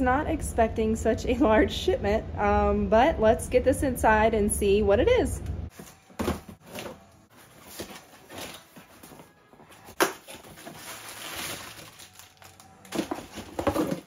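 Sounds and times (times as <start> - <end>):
cardboard boxes scraping and rustling: 5.7 - 12.0
plastic packing crinkling: 9.9 - 14.0.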